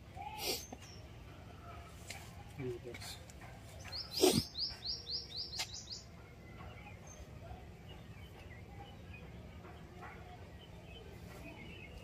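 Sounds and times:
faint bird chirps: 3.8 - 12.0.

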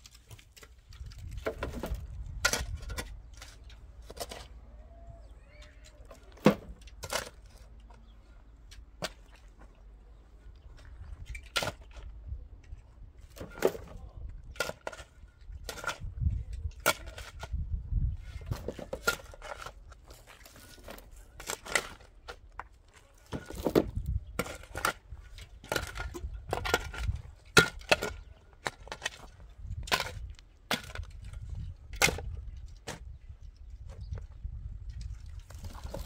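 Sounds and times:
shovel digging rocky soil: 0.0 - 4.6, 5.6 - 7.8, 13.3 - 33.2, 34.9 - 36.0
stones clanking in metal wheelbarrow: 0.0 - 4.6, 5.6 - 8.1, 10.7 - 33.2, 35.0 - 36.0.

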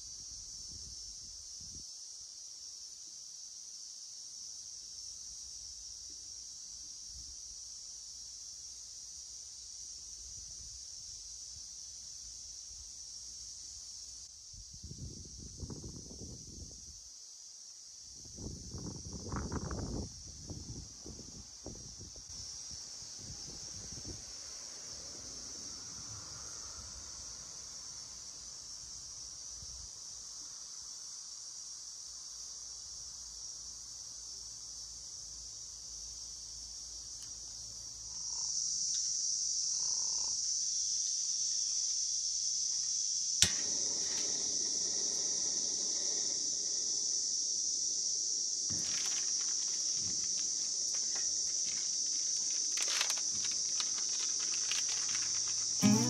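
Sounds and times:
insects chorus: 0.0 - 56.0
sharp click: 43.4 - 45.3
handling clicks and rustles: 48.7 - 55.8.

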